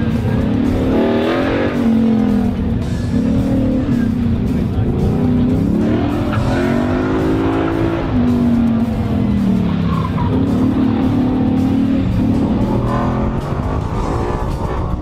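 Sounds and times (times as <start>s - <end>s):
car engine revving: 0.0s - 15.0s
tyres squealing: 5.0s - 15.0s.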